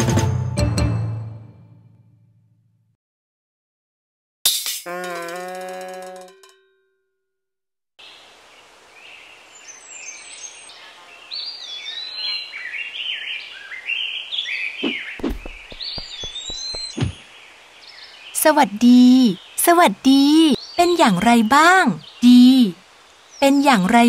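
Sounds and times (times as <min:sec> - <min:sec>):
soft outdoor background: 0:08.0 - 0:24.0
birds chirping and whistling: 0:09.6 - 0:22.6
low thumps: 0:15.2 - 0:17.2.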